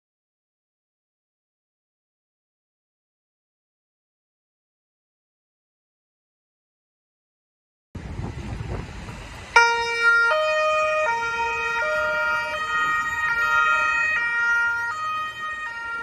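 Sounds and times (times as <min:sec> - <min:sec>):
low rumble: 0:08.0 - 0:09.6
two-tone police siren: 0:09.5 - 0:16.0.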